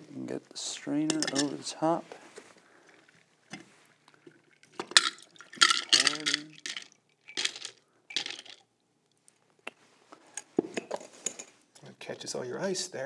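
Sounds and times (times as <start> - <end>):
liquid splashing into glass: 3.0 - 8.6.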